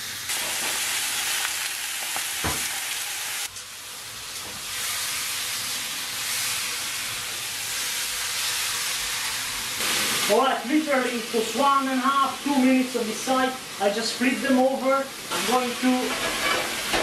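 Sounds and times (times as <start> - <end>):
steaks sizzling in grill pan: 0.0 - 17.0.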